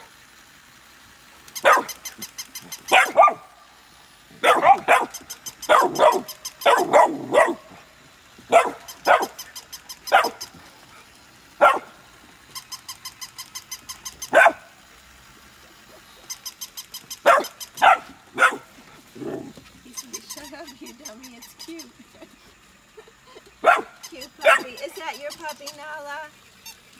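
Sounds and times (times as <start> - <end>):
sharp high-pitched barks: 1.6 - 2.0, 2.8 - 3.5, 4.4 - 7.7, 8.5 - 9.5, 10.1 - 10.5, 11.6 - 11.9, 14.2 - 14.7, 17.2 - 18.7, 23.6 - 24.9.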